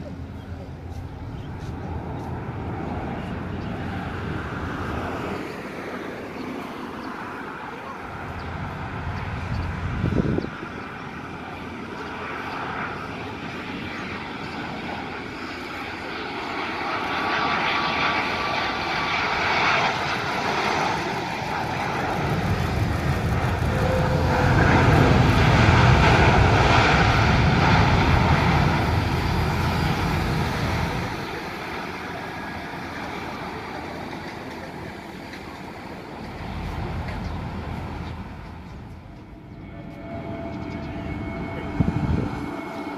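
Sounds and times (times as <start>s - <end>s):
jet engine rumble: 0.0s - 42.9s
reverse thrust roar: 18.8s - 42.9s.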